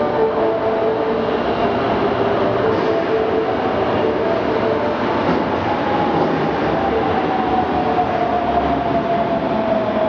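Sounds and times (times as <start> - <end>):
train rumbling: 0.0 - 10.0.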